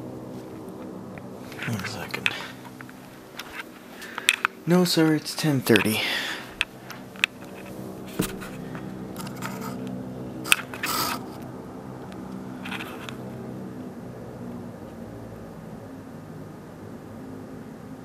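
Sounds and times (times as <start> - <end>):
steady low hum: 0.0 - 18.0
handling clicks and rustles: 0.3 - 11.5.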